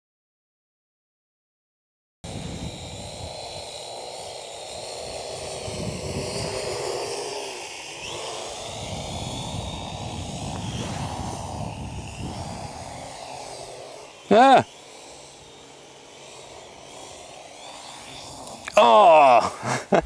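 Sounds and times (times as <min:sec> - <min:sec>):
quadcopter propellers whining: 0:02.2 - 0:20.0.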